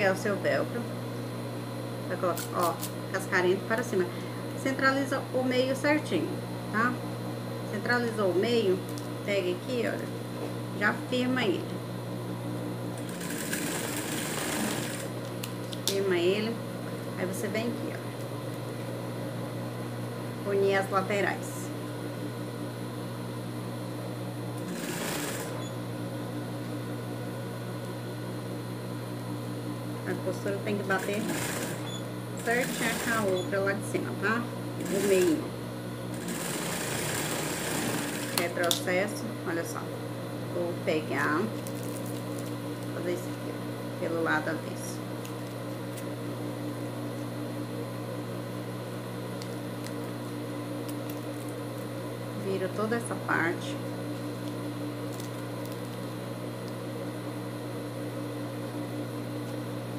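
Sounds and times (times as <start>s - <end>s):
sewing machine motor humming: 13.0s - 15.2s, 24.6s - 25.8s, 30.9s - 33.5s, 34.8s - 35.4s, 36.1s - 38.5s.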